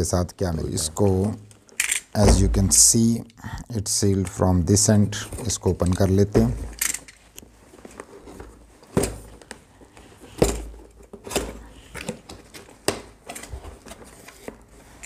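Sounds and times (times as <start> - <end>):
cardboard scraping and handling: 10.1 - 15.0.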